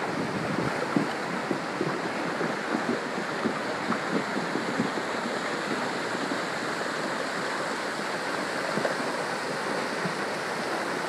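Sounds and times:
floodwater rushing: 0.0 - 11.0.

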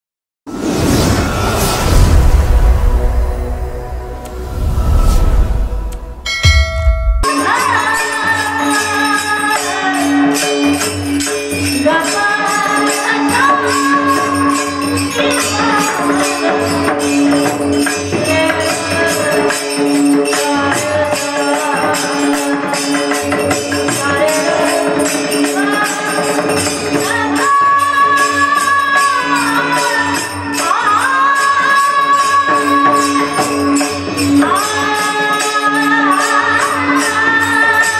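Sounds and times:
steady drone: 0.6 - 7.3
woman singing devotional song: 7.3 - 37.9.

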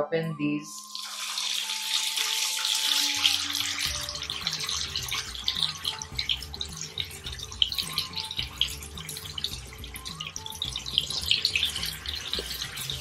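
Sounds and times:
soft background music: 0.0 - 13.0
deep-frying sizzle and pops: 0.8 - 13.0.

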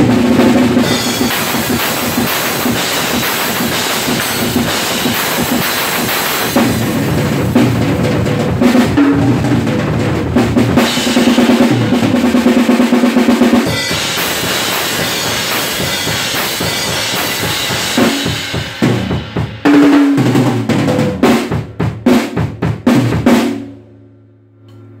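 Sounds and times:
drum kit playing: 0.0 - 23.9
cymbal wash: 0.7 - 7.1, 13.6 - 19.5.

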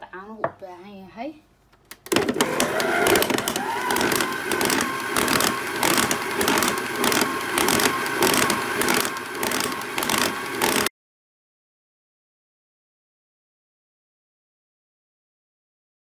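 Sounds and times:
stand mixer motor whine: 2.2 - 10.9
dough churning and knocking: 2.4 - 10.9.

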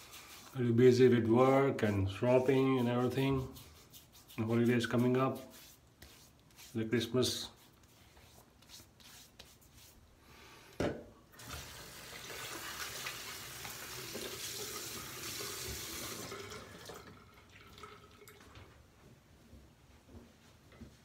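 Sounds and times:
thump: 10.8 - 11.0
tap water running into sink: 11.3 - 18.6.

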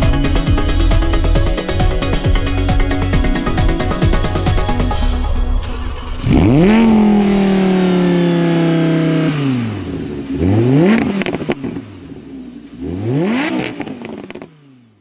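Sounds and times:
sports car engine revving: 6.2 - 15.0.

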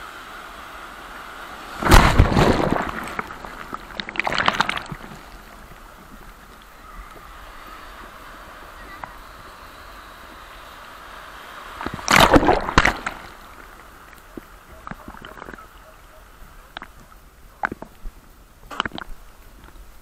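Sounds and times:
loud water splash: 1.4 - 5.8, 11.1 - 13.7
seawater sloshing and splashing: 1.6 - 6.4, 11.8 - 13.6.

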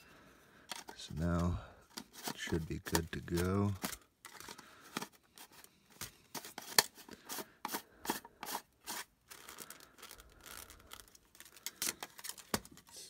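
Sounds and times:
hard plastic clicking and scraping: 0.6 - 8.6.

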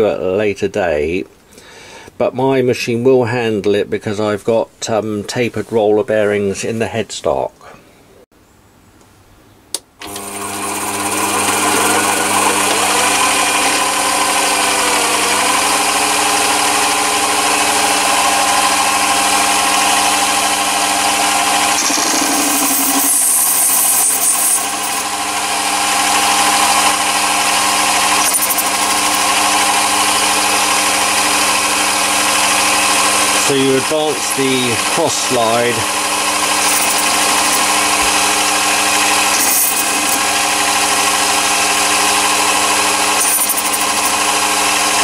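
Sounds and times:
lathe cutter hissing: 10.0 - 45.0
lathe motor whining: 10.0 - 45.0.

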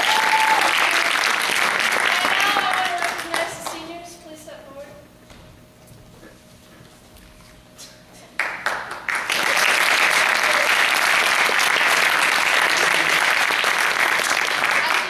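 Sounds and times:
audience applause: 0.0 - 3.8, 8.4 - 15.0.

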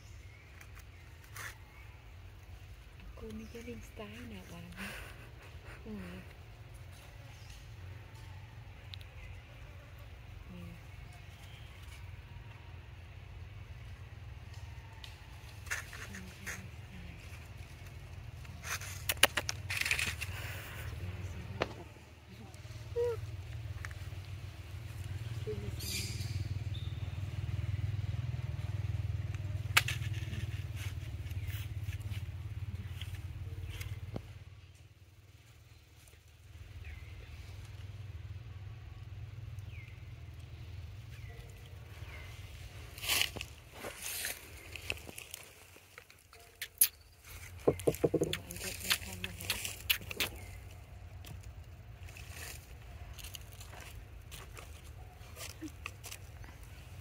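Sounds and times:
scraping crackling rustles: 15.5 - 21.0, 42.4 - 50.8.

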